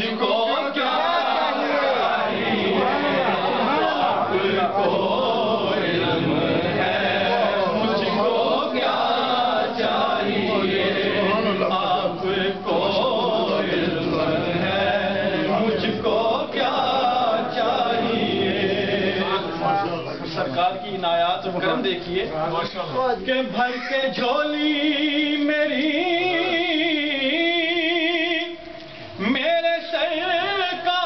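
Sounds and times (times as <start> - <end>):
men chanting together: 0.0 - 20.8.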